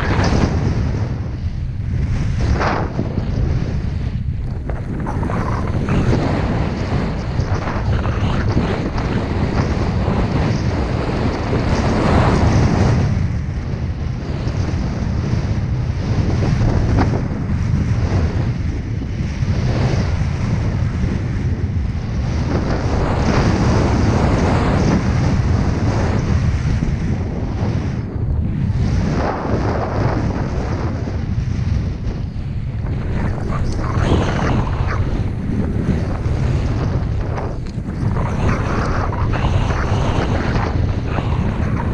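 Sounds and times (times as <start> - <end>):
wind on camera microphone: 0.0 - 41.9
snowboard hissing over snow: 32.9 - 36.8, 37.8 - 41.9.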